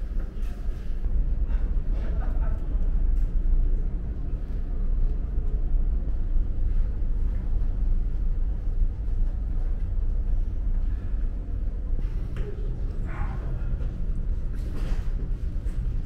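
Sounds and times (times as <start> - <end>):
ferry engines rumbling: 0.0 - 16.0.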